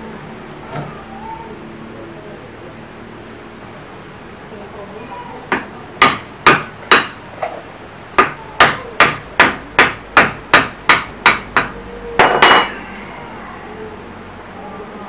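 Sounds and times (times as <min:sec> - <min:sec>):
hammer striking chisel on metal: 0:05.5 - 0:07.2, 0:08.2 - 0:12.9
loud metal clang ringing: 0:12.2 - 0:13.0.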